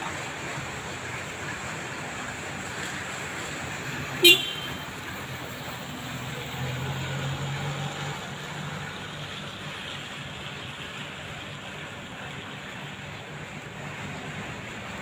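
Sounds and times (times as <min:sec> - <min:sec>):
outdoor traffic noise: 0:00.0 - 0:15.0
vehicle engine rumble: 0:00.0 - 0:15.0
car horn toot: 0:04.2 - 0:04.8.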